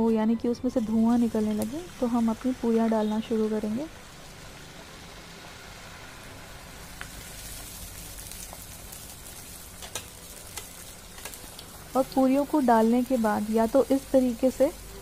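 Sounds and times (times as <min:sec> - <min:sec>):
food sizzling in hot oil: 0:00.6 - 0:15.0
oil ticking and popping: 0:04.1 - 0:13.8.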